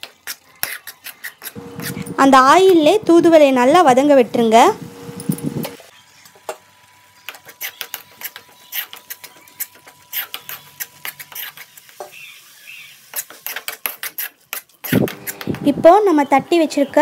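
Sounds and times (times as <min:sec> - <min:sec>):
spoon scraping a metal pan: 0:00.3 - 0:03.0, 0:13.0 - 0:15.5.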